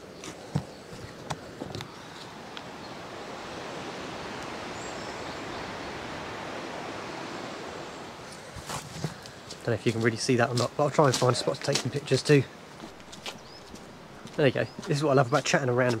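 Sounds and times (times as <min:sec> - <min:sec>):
outdoor ambience hiss: 0:00.0 - 0:16.0
footsteps: 0:08.2 - 0:16.0.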